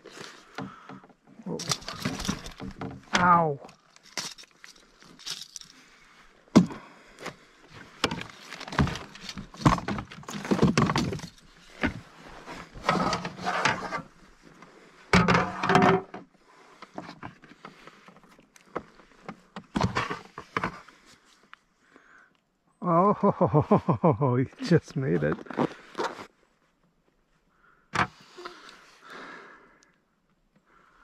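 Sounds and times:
fish handling knocks and rattles: 0.4 - 5.7, 7.9 - 12.0.

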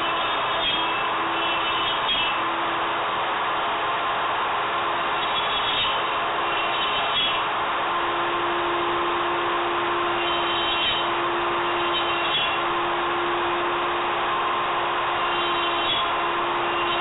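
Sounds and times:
router spindle whine: 0.0 - 17.0.

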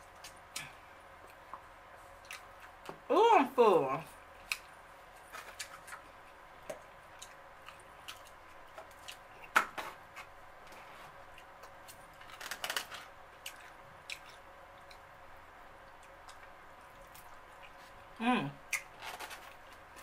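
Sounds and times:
chewing: 4.4 - 9.6, 13.4 - 15.0, 15.8 - 18.0.

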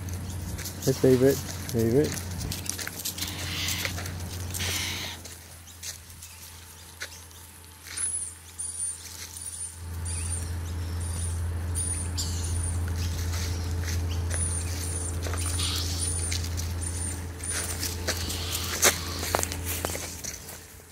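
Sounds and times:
steady low hum: 0.0 - 20.9
bird squeaking: 3.1 - 3.9, 4.5 - 5.2, 10.1 - 19.4.

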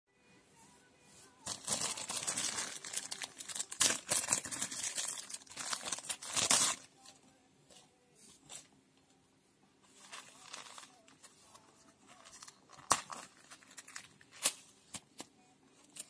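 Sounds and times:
packaging crinkling and tearing: 1.4 - 6.9, 10.0 - 11.2, 12.1 - 14.6.

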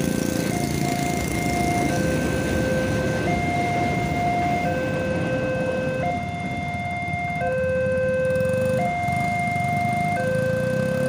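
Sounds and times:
motorcycle engines idling: 0.0 - 11.0.

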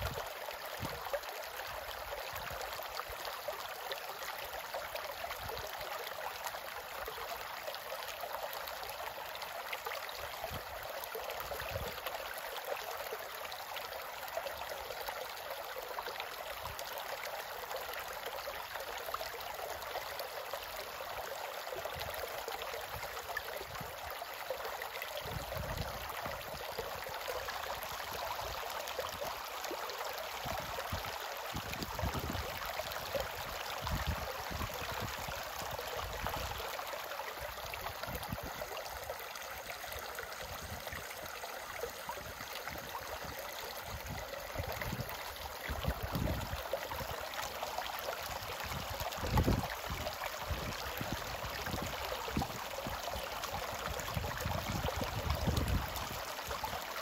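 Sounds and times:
stream babbling over stones: 0.0 - 57.0.

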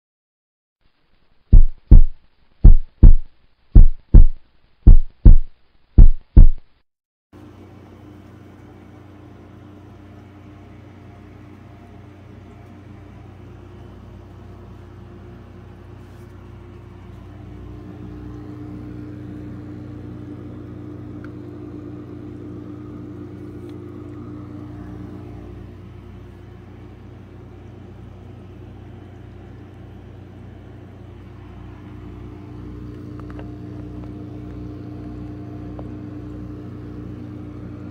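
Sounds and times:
steady low hum: 1.4 - 6.7, 7.4 - 37.9
heartbeat-like thumps: 1.5 - 6.7.

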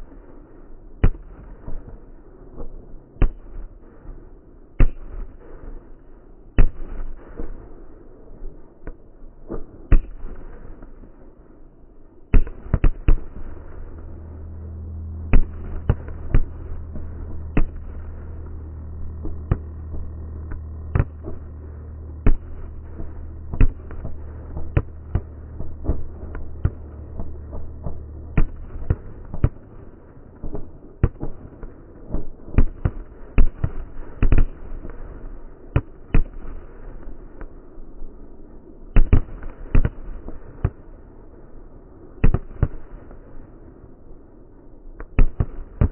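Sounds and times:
low steady hum: 12.2 - 35.1.

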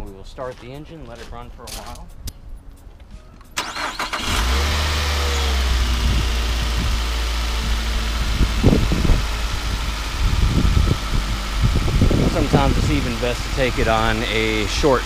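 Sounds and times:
starter cranking: 3.6 - 4.8
car engine idling: 3.6 - 15.0.

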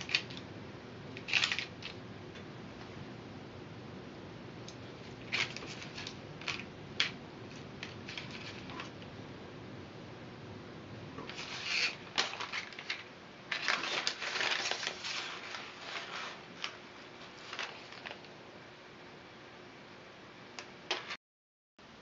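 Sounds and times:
dry straw crackling and rustling: 11.3 - 18.3.

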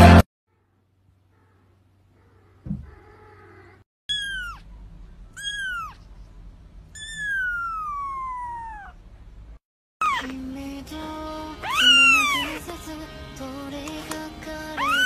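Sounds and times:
kitten meowing: 2.8 - 4.7, 5.4 - 6.0, 6.9 - 9.0, 10.0 - 10.4, 11.6 - 12.6, 14.8 - 15.0.

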